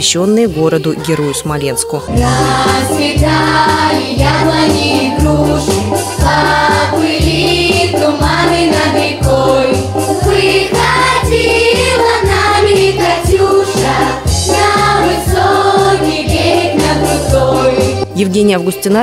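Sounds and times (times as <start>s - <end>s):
children's choir singing: 0.8s - 18.0s
instrumental accompaniment: 2.0s - 19.0s.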